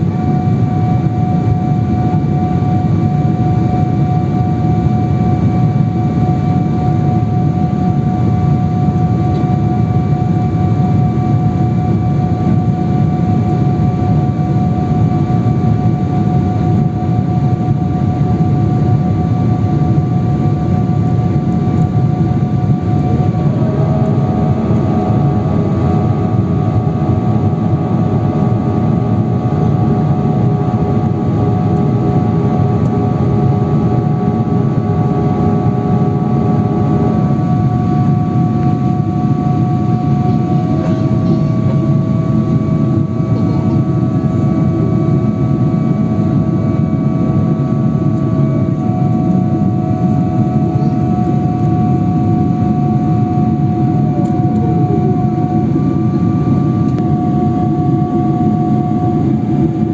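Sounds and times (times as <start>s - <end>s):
high engine whine: 0.0s - 59.9s
jet engines rumbling in cabin: 0.0s - 59.9s.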